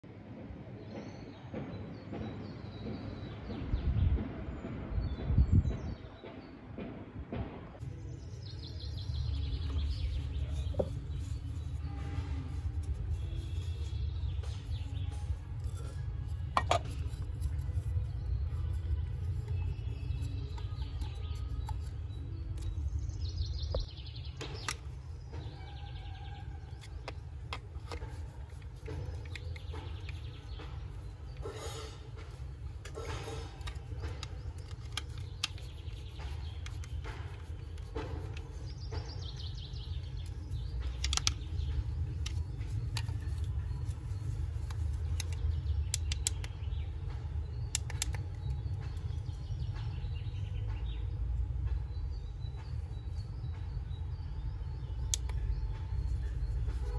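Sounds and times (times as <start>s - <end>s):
birds chirping: 7.8s - 56.9s
plastic clicks and taps: 32.2s - 46.7s, 47.6s - 49.4s.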